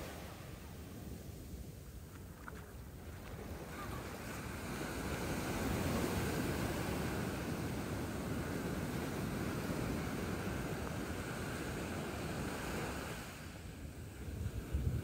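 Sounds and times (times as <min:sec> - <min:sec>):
ocean waves breaking: 0:00.0 - 0:01.6, 0:02.7 - 0:15.0
wind buffeting microphone: 0:02.9 - 0:15.0.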